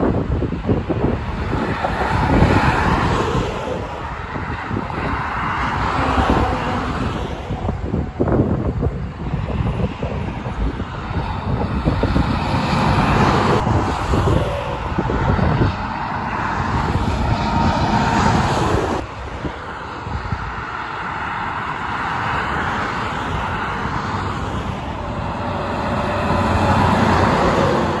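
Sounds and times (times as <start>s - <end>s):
highway traffic rushing: 0.0s - 28.0s
truck passing close: 0.0s - 28.0s
wind buffeting microphone: 0.0s - 28.0s.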